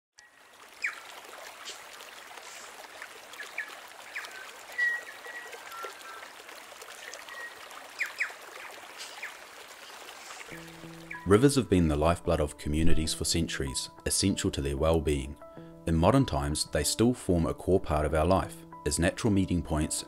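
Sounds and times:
stream running: 0.2s - 12.2s
birds chirping and whistling: 3.6s - 6.2s, 7.0s - 8.4s, 11.0s - 11.4s.

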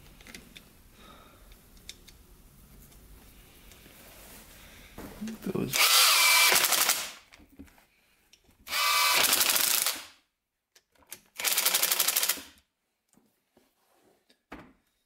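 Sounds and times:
power tool rattling: 5.7s - 7.2s, 8.7s - 10.0s, 11.3s - 12.5s.

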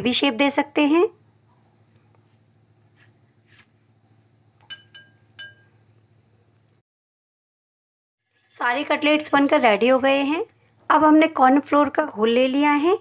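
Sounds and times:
metal bangle clinking on glass bowl: 4.6s - 5.8s.

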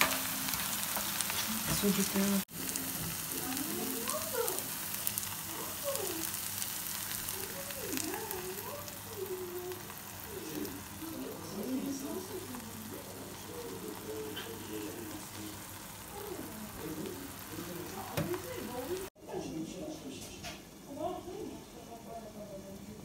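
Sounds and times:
vegetables sizzling in a frying pan: 0.0s - 19.2s.

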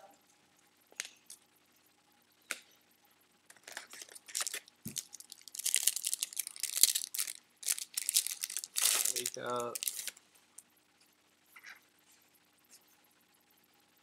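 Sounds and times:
foil wrapper crinkling and tearing: 3.5s - 10.2s.

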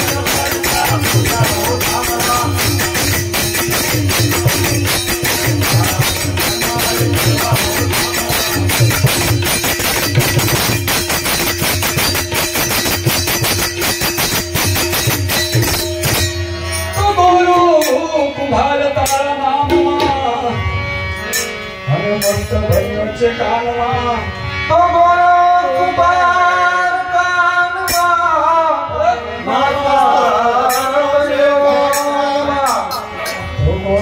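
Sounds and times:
man singing: 0.0s - 9.7s, 16.9s - 20.7s, 21.9s - 34.0s
harmonium: 0.0s - 34.0s
tabla: 0.0s - 34.0s.

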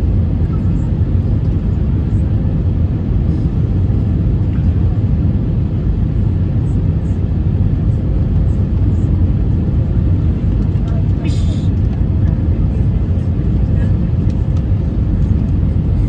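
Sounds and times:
airliner cabin engine rumble: 0.0s - 16.0s.

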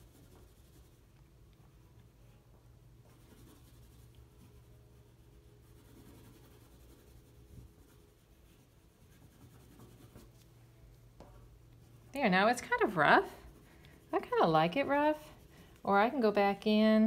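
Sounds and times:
pastel scratching on paper: 0.0s - 1.2s, 3.0s - 10.5s, 11.8s - 16.6s
low steady hum: 0.0s - 17.0s.

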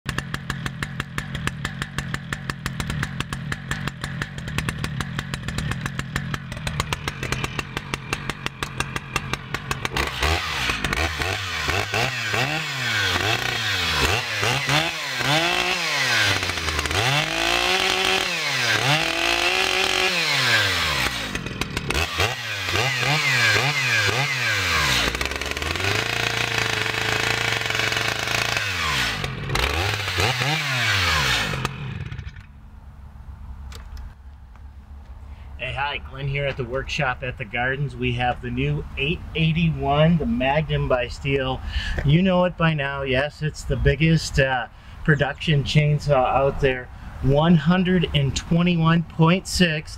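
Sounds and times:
chainsaw engine idling and revving: 0.1s - 32.7s, 46.1s - 49.4s.

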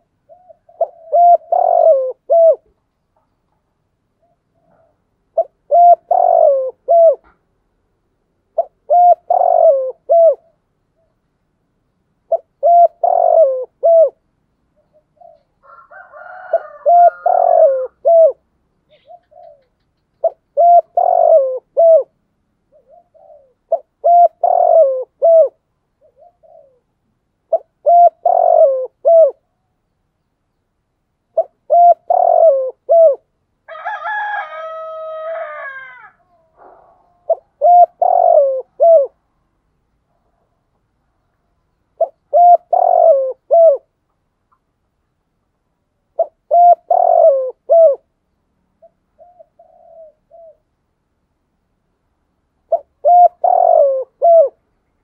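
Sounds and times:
dove cooing: 0.0s - 2.8s, 4.2s - 7.3s, 8.5s - 11.2s, 12.3s - 29.7s, 31.3s - 39.2s, 42.0s - 44.0s, 46.1s - 48.1s, 48.8s - 50.7s, 52.6s - 54.6s
longer bird call: 11.9s - 26.9s.

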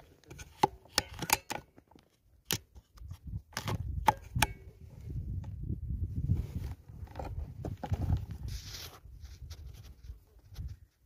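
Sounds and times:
air rifle and tripod clicks: 0.3s - 4.7s.

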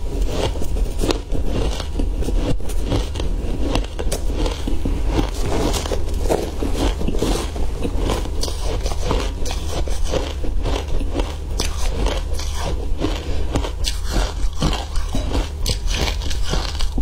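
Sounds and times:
ice being chewed: 0.0s - 17.0s
metal spoon scraping ice: 0.1s - 17.0s.

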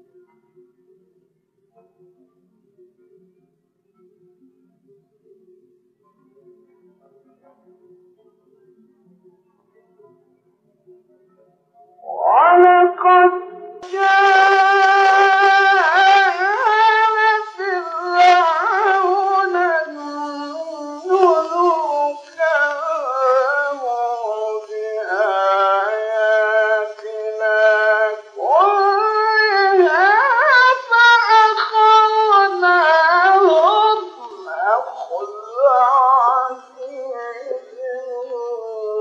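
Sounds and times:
man reciting melodically: 12.0s - 39.0s.

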